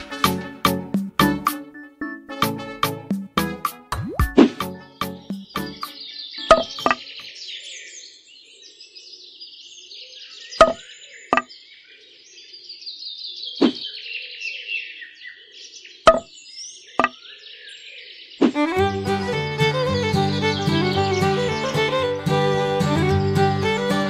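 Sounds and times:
birds chirping: 4.2s - 8.1s, 13.5s - 24.0s.

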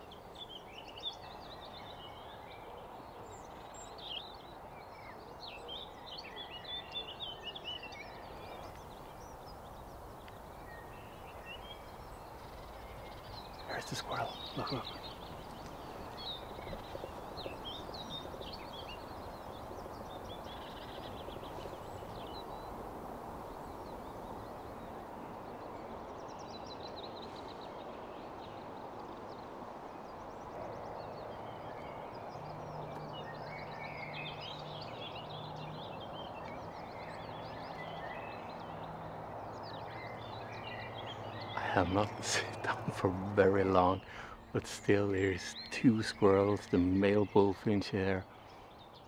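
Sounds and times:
songbirds chirping and trilling: 0.0s - 49.0s
steady background hiss: 5.4s - 36.4s.

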